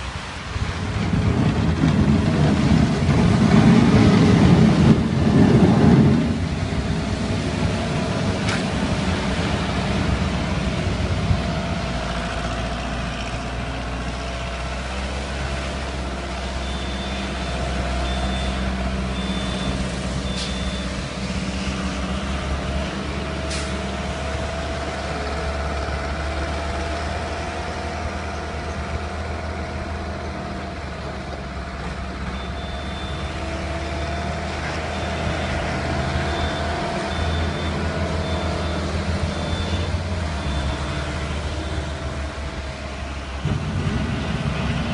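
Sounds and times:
loader engine running: 0.0s - 44.9s
reversing alarm beeping: 16.4s - 21.2s, 32.2s - 42.0s.

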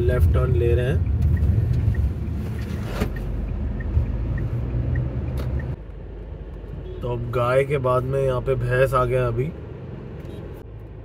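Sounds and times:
turn indicator ticking: 0.0s - 6.9s
engine and tyre rumble: 0.0s - 11.0s.

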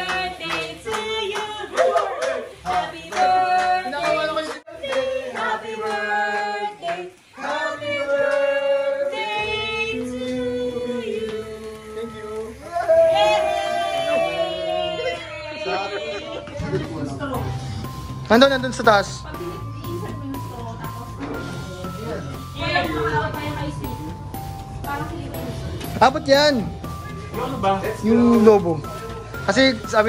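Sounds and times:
group singing together: 0.0s - 17.2s, 21.2s - 24.0s.

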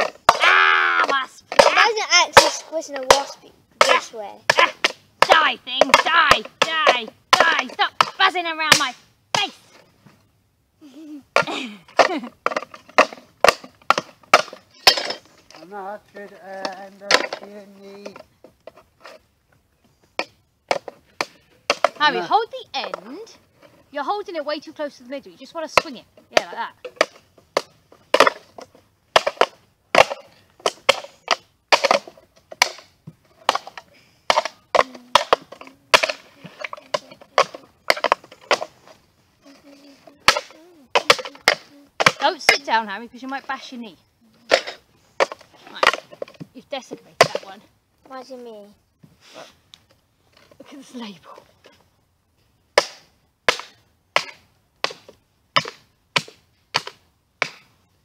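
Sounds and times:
mallet striking tin cans: 0.0s - 9.0s, 25.7s - 38.7s, 40.2s - 42.8s
hammer crushing tin cans: 40.2s - 42.7s.

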